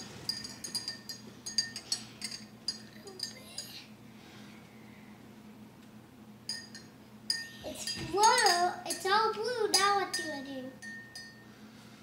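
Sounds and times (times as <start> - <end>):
glassware and metal tray clinking: 0.0 - 3.8, 6.5 - 11.4.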